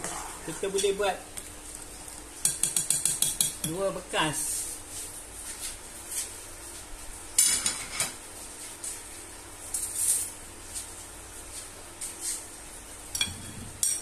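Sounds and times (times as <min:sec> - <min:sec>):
clinks of utensils and dishes: 0:07.4 - 0:08.2, 0:13.1 - 0:14.0.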